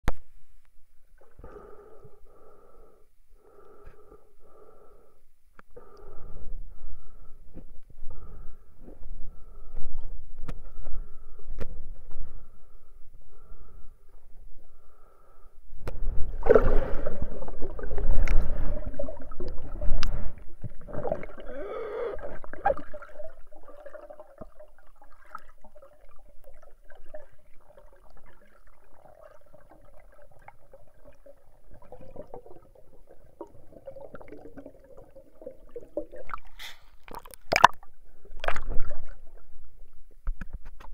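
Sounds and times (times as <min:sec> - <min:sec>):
faint steady hum: 0:00.1 - 0:40.9
water churning underwater: 0:08.0 - 0:40.6.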